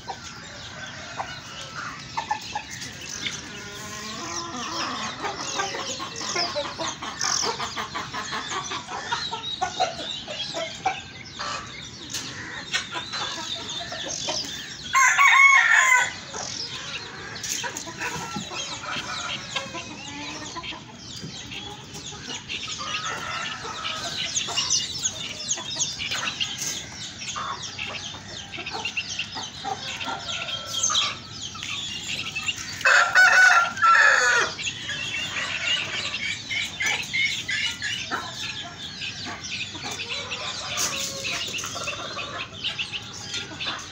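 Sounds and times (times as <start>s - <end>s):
chickens clucking: 0.0s - 43.9s
rooster crowing: 14.9s - 16.2s, 32.8s - 34.6s.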